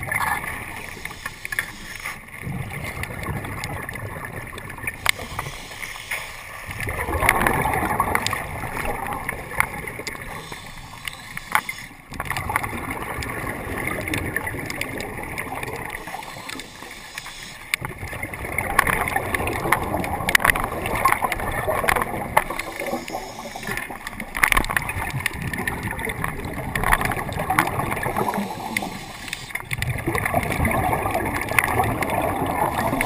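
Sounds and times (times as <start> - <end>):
regulator bubbles gurgling underwater: 0.0 - 33.0
sharp clicks: 9.6 - 12.6, 18.7 - 25.4, 26.8 - 29.9.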